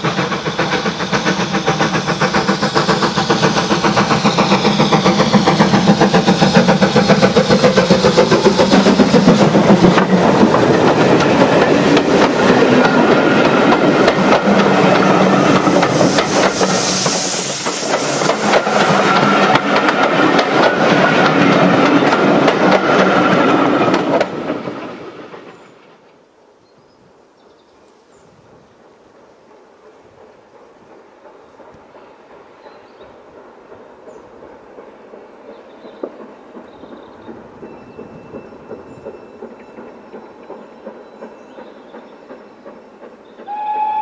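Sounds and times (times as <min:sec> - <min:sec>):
steam locomotive exhaust beats: 0:00.0 - 0:25.6, 0:28.2 - 0:44.0
wheels clicking over rail joints: 0:01.4 - 0:16.8, 0:17.6 - 0:26.2.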